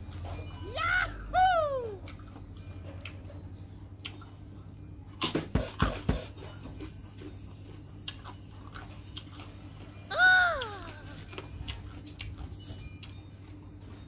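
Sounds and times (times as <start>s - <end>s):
steady low hum: 0.0s - 14.0s
person chewing: 4.0s - 4.5s, 6.7s - 10.0s, 10.6s - 13.2s.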